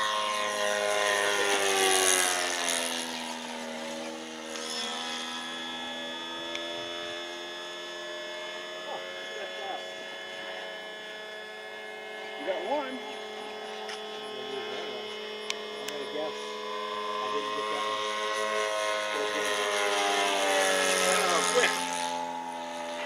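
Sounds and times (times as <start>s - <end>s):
model airplane flying past: 0.0s - 23.0s.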